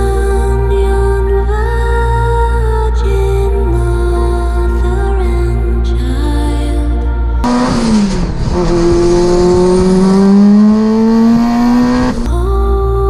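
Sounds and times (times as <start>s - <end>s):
car engine accelerating: 7.4s - 12.4s.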